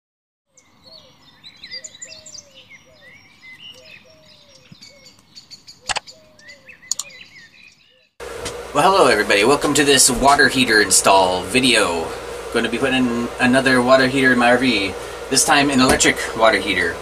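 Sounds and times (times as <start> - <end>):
birds chirping: 0.5 - 8.2
sharp clicks: 5.9 - 6.1, 6.9 - 7.2.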